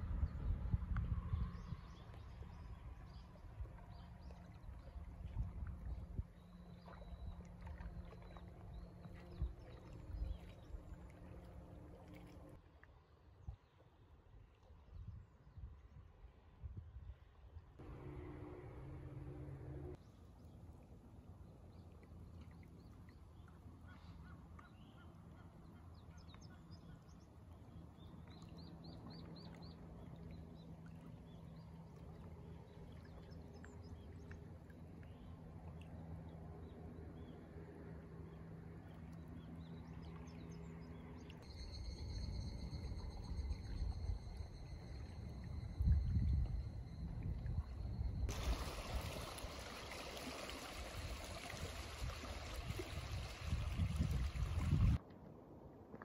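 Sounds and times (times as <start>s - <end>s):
small waves lapping at shore: 2.0s - 13.8s, 47.6s - 55.0s
low steady hum: 17.8s - 20.5s, 28.7s - 55.9s
wind gusting on microphone: 51.0s - 55.0s.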